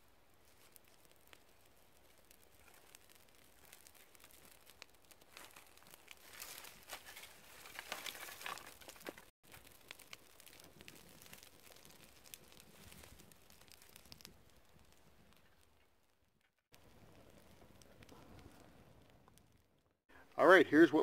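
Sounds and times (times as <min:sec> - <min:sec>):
small fire crackling: 0:00.0 - 0:21.0
dry twigs rustling: 0:00.2 - 0:16.2.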